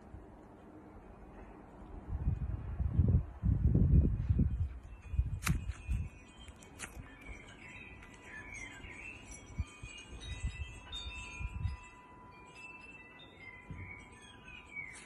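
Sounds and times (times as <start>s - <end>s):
wind chimes ringing: 3.9s - 15.0s.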